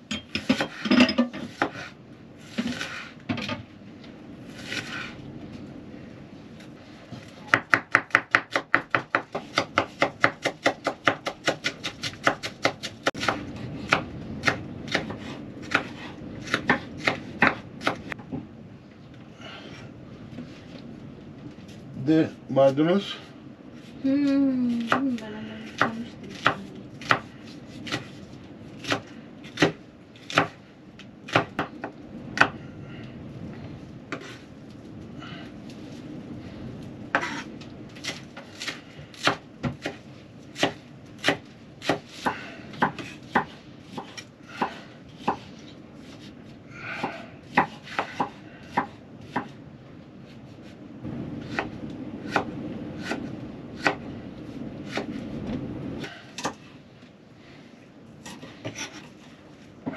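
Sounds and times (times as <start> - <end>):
knife chopping on wooden board: 25.7 - 28.1, 40.6 - 45.5, 47.0 - 49.5.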